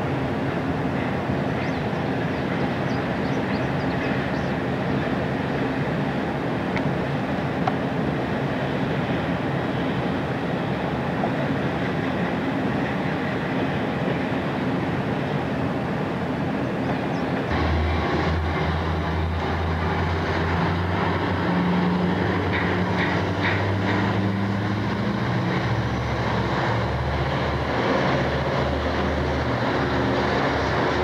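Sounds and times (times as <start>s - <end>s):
diesel locomotive engines drumming: 0.0s - 31.0s
train rumble: 0.0s - 31.0s.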